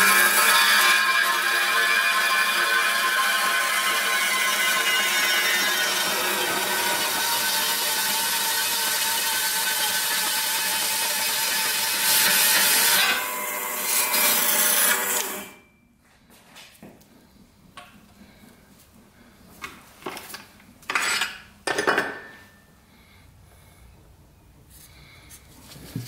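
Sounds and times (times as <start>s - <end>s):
metal-cutting bandsaw cutting steel: 0.0s - 15.6s.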